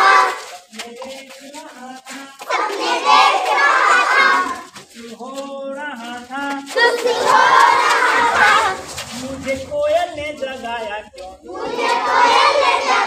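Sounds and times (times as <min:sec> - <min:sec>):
children calling out together: 0:00.0 - 0:00.7, 0:02.4 - 0:04.8, 0:06.7 - 0:09.2.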